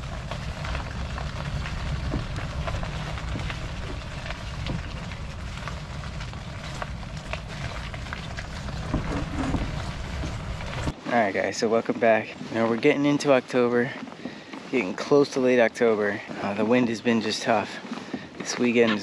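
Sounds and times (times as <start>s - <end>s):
gear clicking and rattling: 0.0s - 11.0s
wheels rumbling over asphalt: 0.0s - 19.0s.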